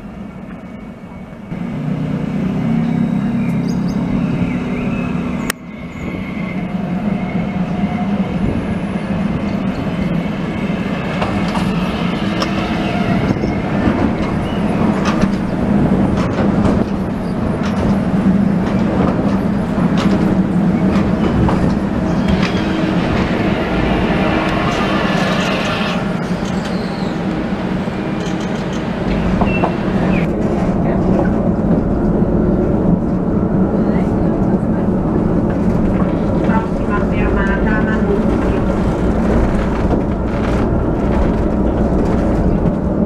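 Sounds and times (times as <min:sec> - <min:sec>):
tram electric drive hum: 0:00.0 - 0:43.0
tram clicking on guide rail: 0:07.7 - 0:43.0.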